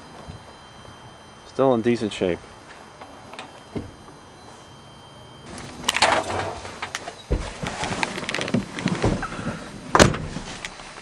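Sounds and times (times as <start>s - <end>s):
clunks and knocks in truck cab: 8.6s - 10.5s.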